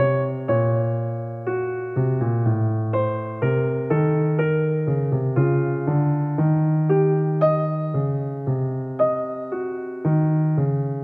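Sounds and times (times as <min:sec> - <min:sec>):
electric piano melody: 0:00.0 - 0:11.0.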